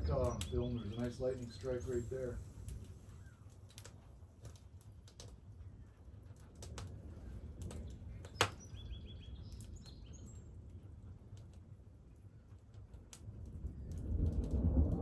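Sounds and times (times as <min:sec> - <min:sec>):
small bird chirping: 0:00.0 - 0:02.4, 0:07.8 - 0:10.5
light crackles: 0:00.0 - 0:15.0
rolling thunder: 0:13.4 - 0:15.0
sharp thunder crack: 0:14.0 - 0:15.0.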